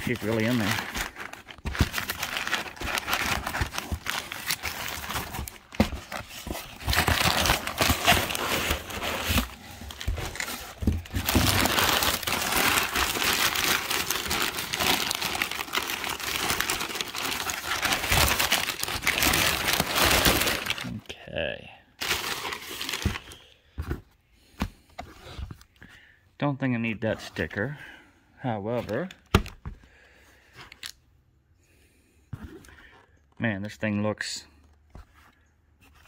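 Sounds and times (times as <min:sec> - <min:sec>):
packing paper crinkling and rustling: 0:00.0 - 0:21.0, 0:22.0 - 0:23.5.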